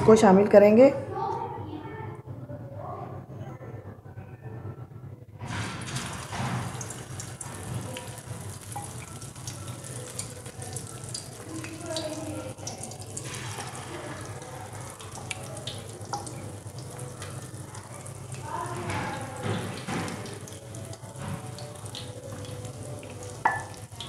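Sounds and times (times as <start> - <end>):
chicken sizzling in hot oil: 5.4 - 24.0
oil crackling and popping: 5.4 - 24.0.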